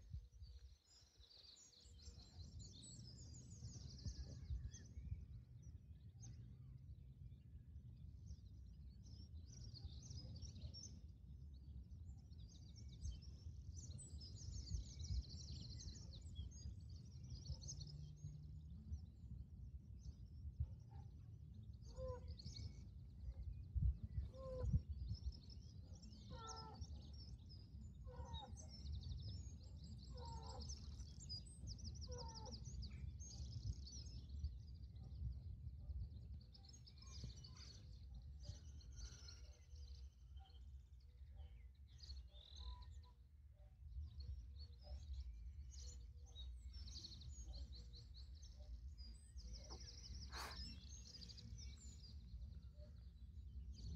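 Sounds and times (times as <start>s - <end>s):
small birds chirping: 8.3s - 53.9s
lower bird call: 49.6s - 51.3s.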